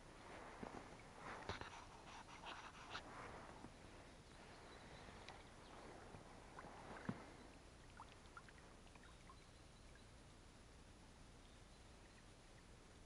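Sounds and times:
oars in water: 0:04.5 - 0:09.2.

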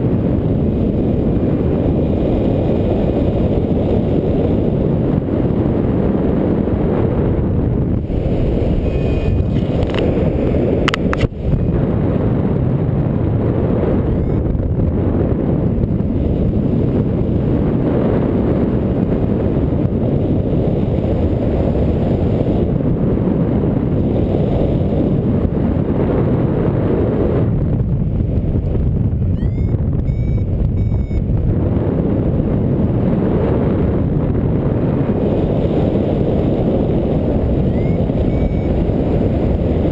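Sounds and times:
wind buffeting microphone: 0:00.0 - 0:39.9
faint short rising beeps: 0:08.7 - 0:09.6, 0:14.1 - 0:14.5, 0:29.4 - 0:31.2, 0:37.7 - 0:38.8.

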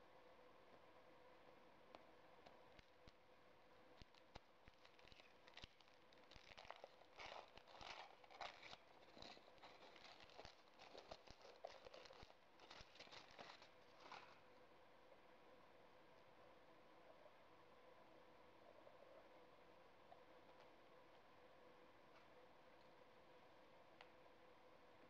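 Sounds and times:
foil wrapper crinkling: 0:04.0 - 0:14.5.

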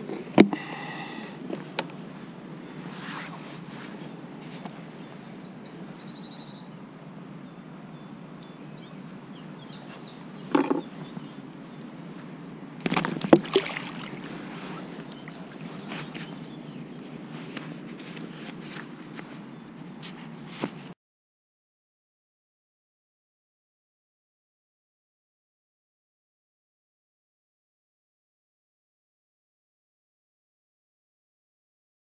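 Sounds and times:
outdoor lakeside background noise: 0:00.0 - 0:21.0
small bird singing: 0:03.9 - 0:11.9, 0:14.6 - 0:17.2
handling knocks and rustles: 0:10.5 - 0:11.3, 0:12.8 - 0:20.9.

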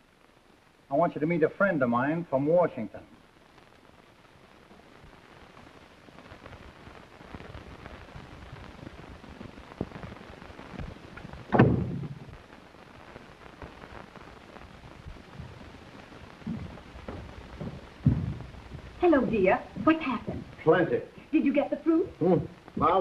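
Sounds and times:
film soundtrack crackling hiss: 0:00.0 - 0:23.0
loud thud: 0:11.5 - 0:12.3, 0:16.5 - 0:19.0.

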